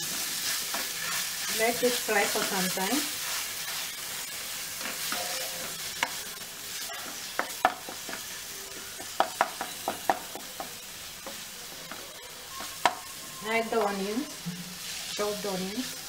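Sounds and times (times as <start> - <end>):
paste sizzling in hot oil: 0.0 - 16.0
spoon tapping and scraping pan: 6.8 - 8.3, 9.0 - 12.0, 12.6 - 13.1.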